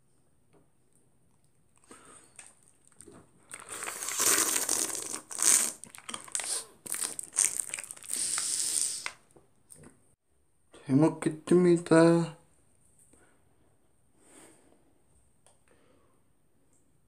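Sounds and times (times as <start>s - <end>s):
plastic wrapper crinkling: 3.5s - 9.2s.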